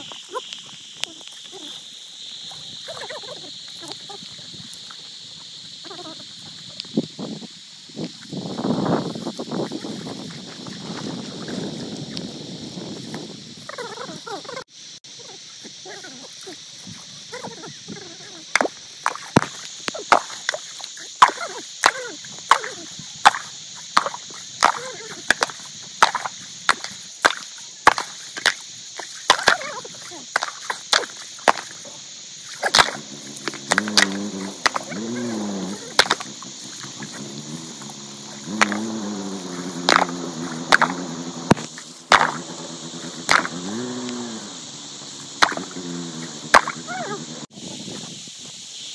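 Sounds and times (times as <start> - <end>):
insects droning: 0.0 - 48.9
sharp chopping blows: 18.6 - 29.8, 30.4 - 31.8, 32.5 - 44.5, 45.2 - 47.4.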